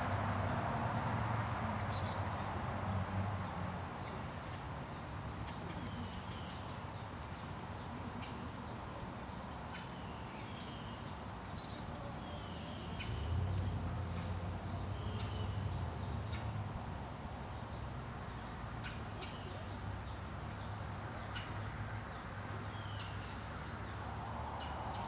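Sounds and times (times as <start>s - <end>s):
steady background hiss: 0.0s - 25.0s
birds chirping: 9.6s - 25.0s.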